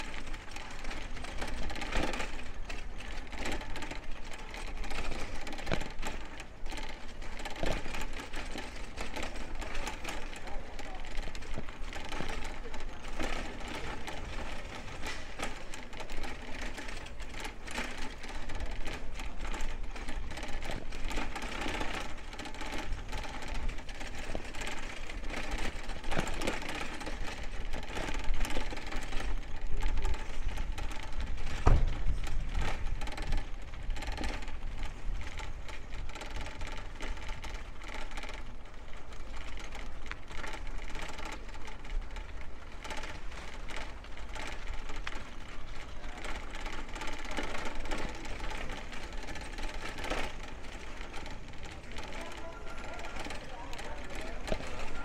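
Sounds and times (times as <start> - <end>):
bicycle ticking and rattling: 0.0 - 55.0
street noise: 0.0 - 55.0
low thump: 31.6 - 32.1.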